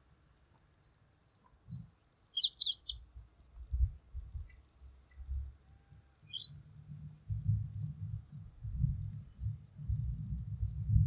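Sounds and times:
bird chirping: 0.7 - 7.6.

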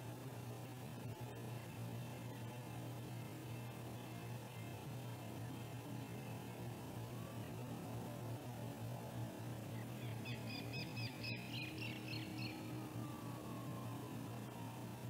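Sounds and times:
steady low hum: 0.0 - 15.0
small bird chirping: 10.0 - 12.7.

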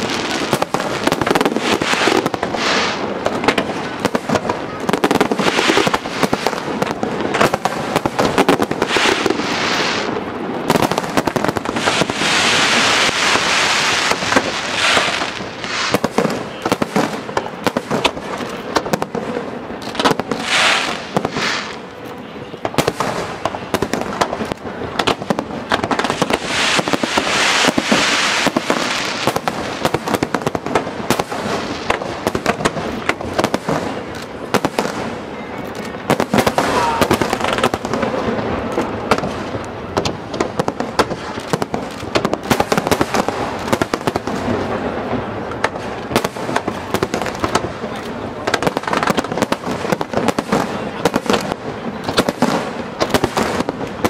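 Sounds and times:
fireworks shells bursting: 0.0 - 19.1, 19.8 - 21.9, 22.7 - 44.6
crackling hiss of fireworks: 0.0 - 54.0.

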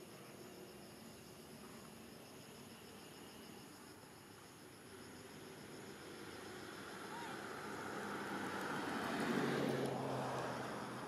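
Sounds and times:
faint outdoor hiss: 0.0 - 11.0
insects chirring: 0.0 - 11.0.

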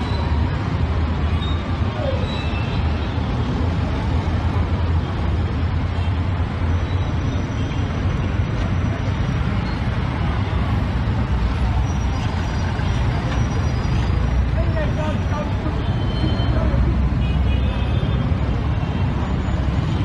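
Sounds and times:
cars passing: 0.0 - 20.0
low traffic rumble: 0.0 - 20.0
motorbikes passing: 8.2 - 20.0.

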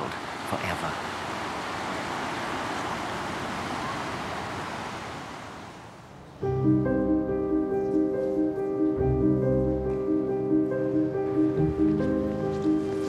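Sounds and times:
sea surf on shingle beach: 0.0 - 6.0
background music: 6.4 - 13.0.

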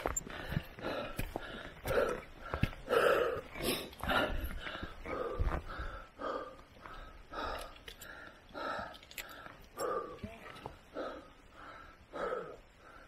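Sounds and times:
footsteps: 0.0 - 6.0
heavy rhythmic breathing: 0.0 - 13.0.

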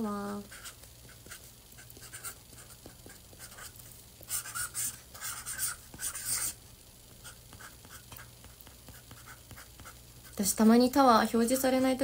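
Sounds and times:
marker pen scratching: 0.5 - 6.6, 7.2 - 10.4.

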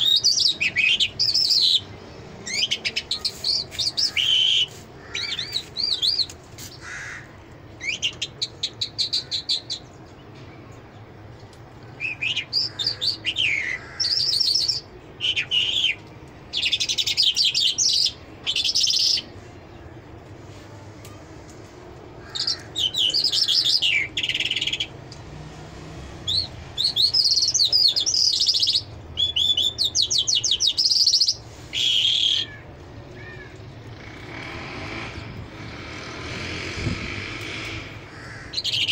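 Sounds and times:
songbird trilling and twittering: 0.0 - 7.2, 11.4 - 20.0, 22.2 - 25.0, 26.2 - 32.6.

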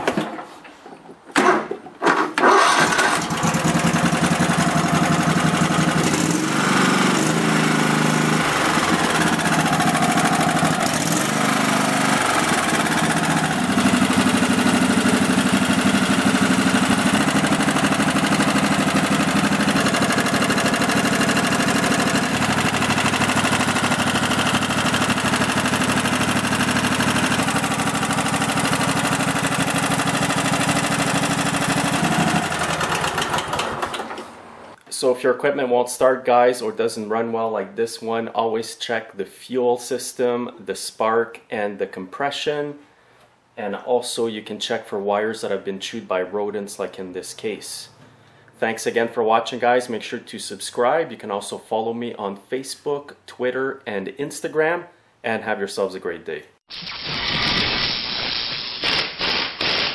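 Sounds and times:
lawn tractor engine running: 2.4 - 34.8.

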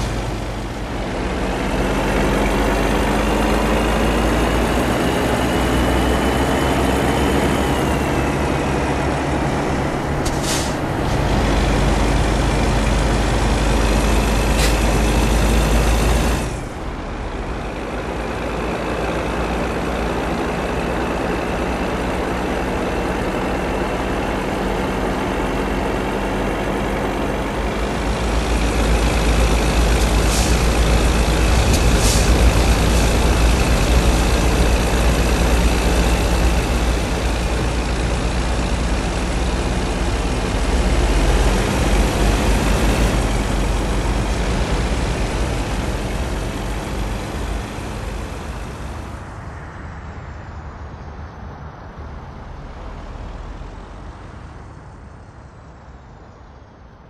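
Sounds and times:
heavy truck engine rumbling: 0.0 - 57.0
air brake hisses: 10.2 - 10.8.

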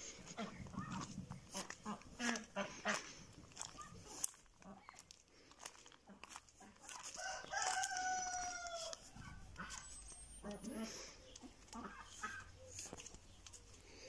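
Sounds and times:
rooster crowing: 7.1 - 9.6.

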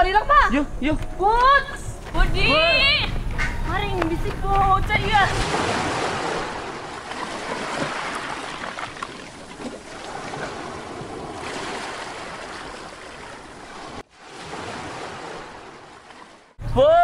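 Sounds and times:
small waves breaking on shore: 4.5 - 16.6.

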